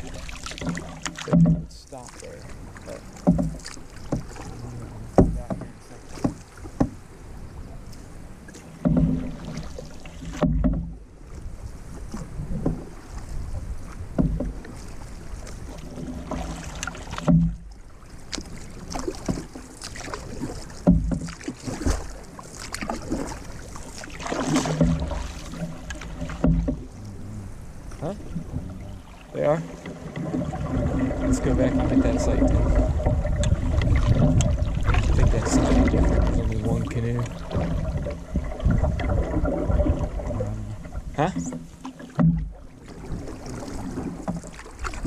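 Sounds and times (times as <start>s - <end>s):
paddle thumps: 0.0s - 2.2s, 2.8s - 7.0s, 8.6s - 11.0s, 12.1s - 12.9s, 13.9s - 14.8s, 15.8s - 27.0s, 41.1s - 45.0s
paddle splashing through water: 0.0s - 45.0s
water washing along hull: 0.0s - 45.0s.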